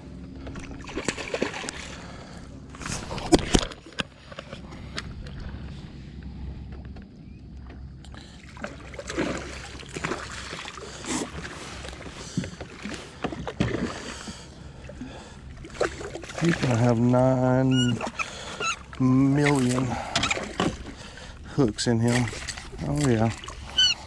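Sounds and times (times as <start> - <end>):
fish splashing at the surface: 0.5 - 2.3, 8.4 - 14.4.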